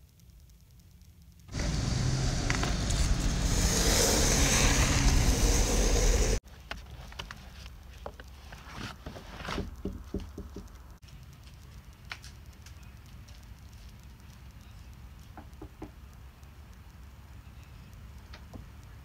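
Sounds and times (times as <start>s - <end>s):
low outdoor rumble: 1.5s - 6.4s.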